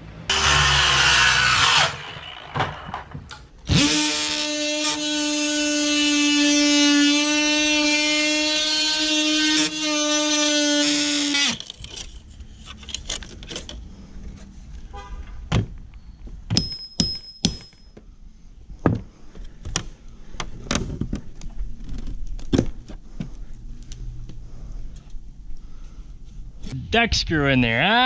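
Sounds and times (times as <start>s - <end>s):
hand tools knocking on metal: 16.6s - 17.9s.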